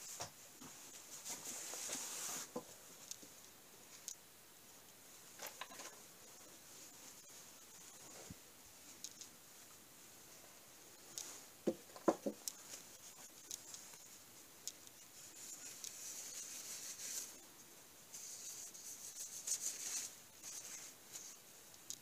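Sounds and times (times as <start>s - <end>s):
light clicks and knocks: 11.1s - 12.8s.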